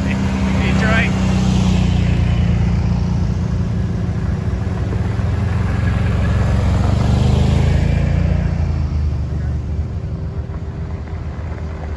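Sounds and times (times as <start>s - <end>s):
atv engines passing: 0.0s - 11.9s.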